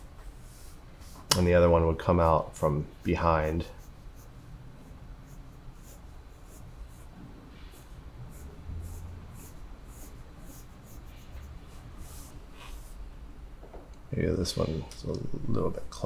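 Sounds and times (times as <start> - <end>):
faint low hum: 0.0 - 16.0
pencil scratching on paper: 3.4 - 13.0.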